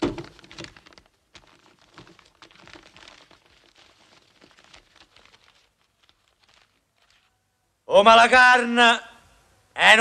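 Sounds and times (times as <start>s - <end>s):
paper rustling and crinkling: 0.0s - 7.4s.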